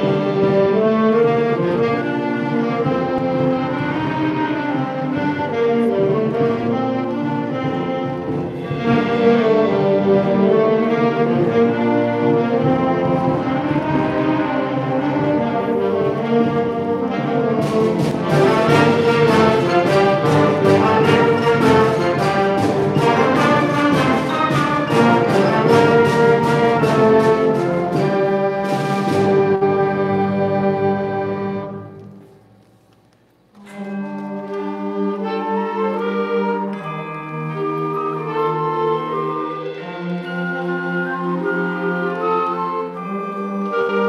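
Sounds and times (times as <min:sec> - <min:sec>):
percussion strikes: 0:00.0 - 0:30.6, 0:33.4 - 0:42.3
concert band playing chords: 0:00.0 - 0:31.6.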